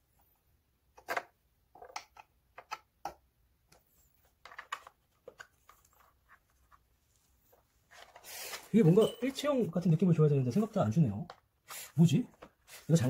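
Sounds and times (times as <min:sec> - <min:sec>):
hard plastic clicks and taps: 0:01.0 - 0:03.8.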